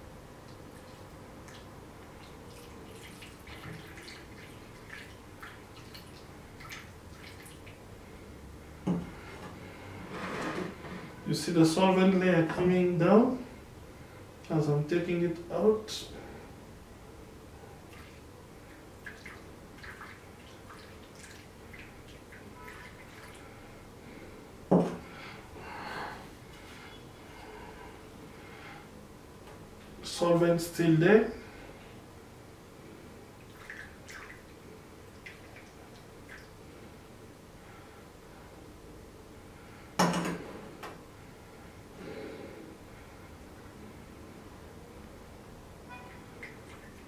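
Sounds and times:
liquid dripping and trickling: 0.4s - 7.8s, 17.9s - 23.6s, 33.4s - 36.6s, 46.4s - 47.0s.

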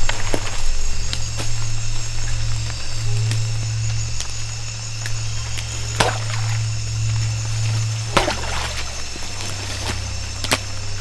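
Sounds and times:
insects buzzing: 0.0s - 11.0s
low steady drone: 0.0s - 11.0s
sharp hits: 2.5s - 10.7s.

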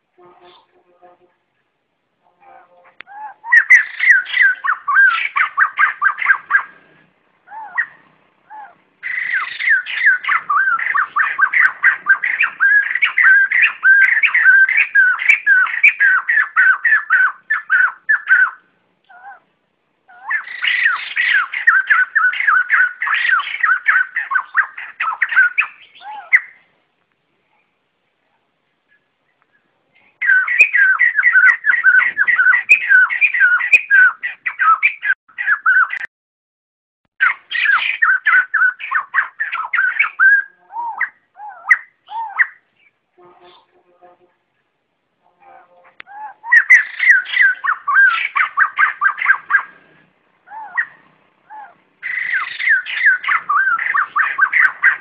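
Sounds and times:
bird rapid whistled call: 3.4s - 6.8s, 9.0s - 18.6s, 20.2s - 26.6s, 30.2s - 36.1s, 46.1s - 49.8s, 50.5s - 55.0s.

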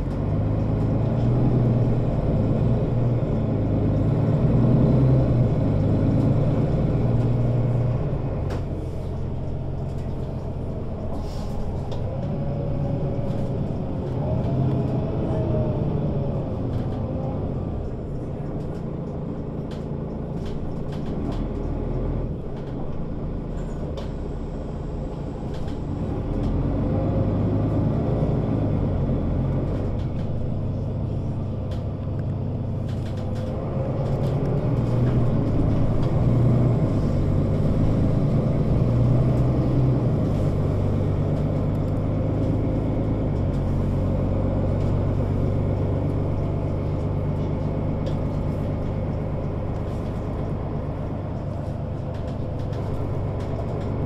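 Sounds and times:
bus diesel engine running: 0.0s - 54.0s
light rattles and ticks: 16.2s - 24.3s, 29.5s - 54.0s.

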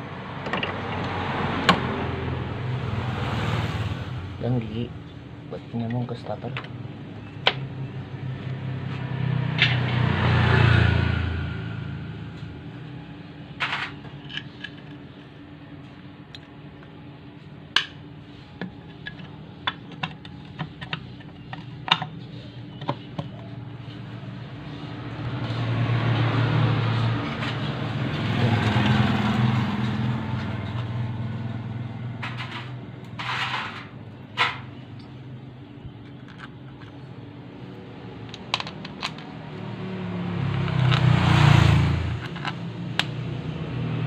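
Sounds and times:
engine hum: 0.0s - 44.0s.

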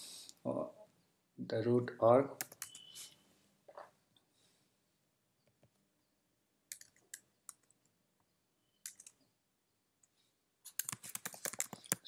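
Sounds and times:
keyboard keystrokes: 2.4s - 2.9s, 10.7s - 12.0s.

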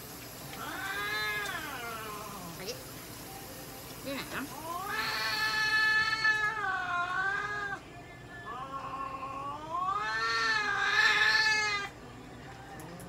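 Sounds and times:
cat yowling: 0.6s - 2.6s, 4.5s - 12.0s.

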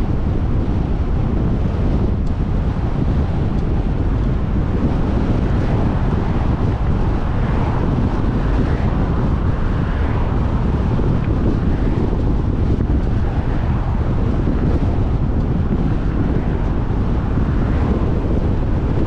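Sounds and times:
road noise: 0.0s - 19.0s
wind buffeting microphone: 0.0s - 19.0s.

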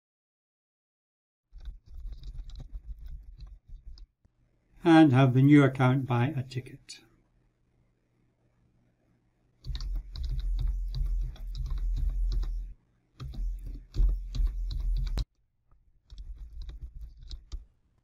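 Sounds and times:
computer keyboard typing: 1.6s - 4.0s, 9.6s - 15.3s, 16.1s - 17.6s.

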